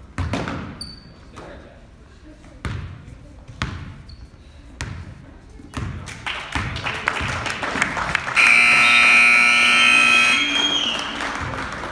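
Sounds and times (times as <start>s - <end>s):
basketball bouncing on gym floor: 0.1s - 1.0s, 2.6s - 4.1s, 4.8s - 6.0s
crowd noise: 4.5s - 11.9s
scoreboard buzzer blaring: 8.4s - 10.7s.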